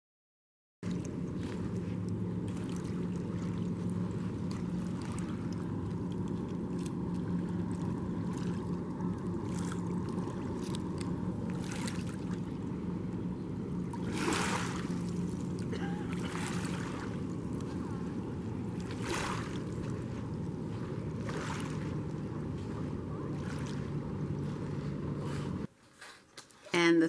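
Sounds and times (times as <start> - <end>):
low engine hum: 0.8 - 25.7.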